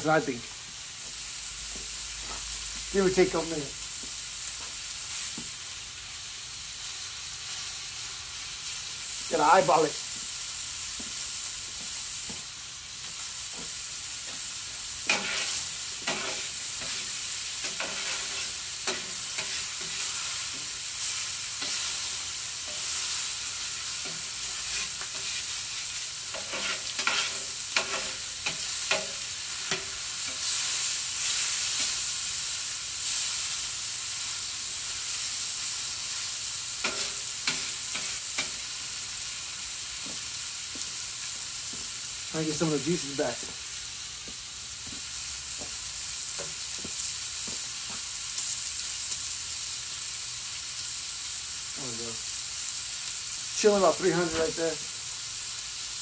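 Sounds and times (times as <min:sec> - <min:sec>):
steaks sizzling on a griddle: 0:00.0 - 0:56.0
metal utensils scraping a griddle: 0:15.0 - 0:32.0, 0:36.8 - 0:38.6.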